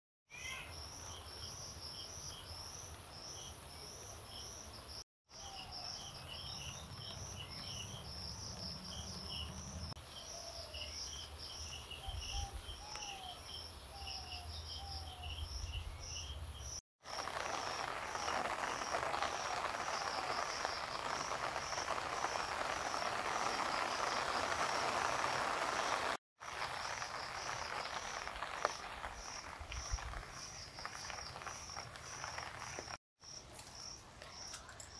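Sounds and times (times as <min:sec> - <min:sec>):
insects chirping: 0:12.9 - 0:34.9
loud even hiss: 0:17.1 - 0:29.9
low insect pulses: 0:17.1 - 0:34.6.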